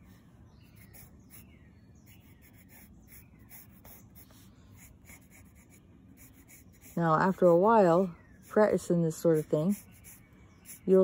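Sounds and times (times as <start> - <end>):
pencil scratching on paper: 0.8 - 1.4, 2.1 - 7.6, 8.5 - 11.0.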